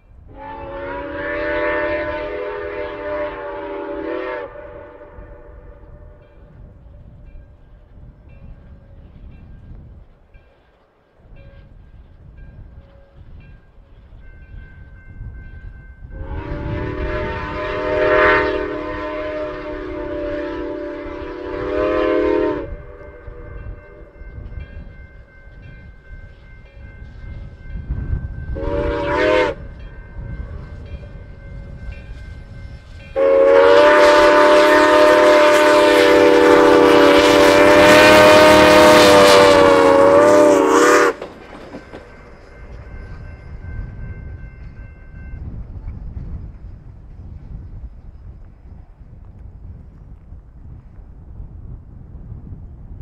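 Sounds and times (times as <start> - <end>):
low locomotive rumble: 0.0 - 53.0
steam whistle blasts: 0.3 - 6.2, 16.1 - 24.2, 28.5 - 29.8, 33.0 - 41.3.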